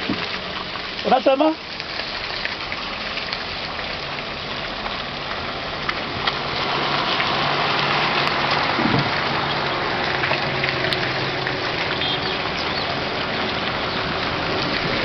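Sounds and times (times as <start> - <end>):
wet road hiss: 0.0 - 15.0
vehicle engines running: 4.5 - 15.0.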